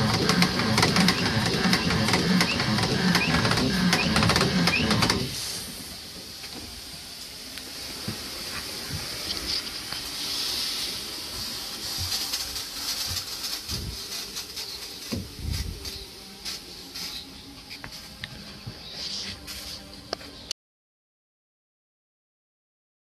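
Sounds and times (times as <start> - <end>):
steam hissing: 0.0 - 20.1.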